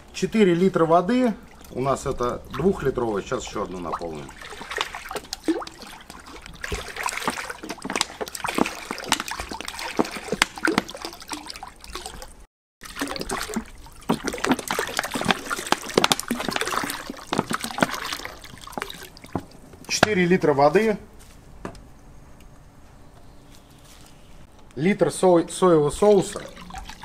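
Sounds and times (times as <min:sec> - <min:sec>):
water pouring and splashing: 0:00.0 - 0:20.2, 0:25.9 - 0:27.0.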